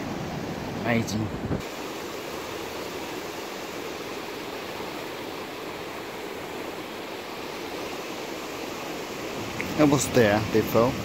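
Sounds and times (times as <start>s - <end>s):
river rushing: 0.0s - 11.0s.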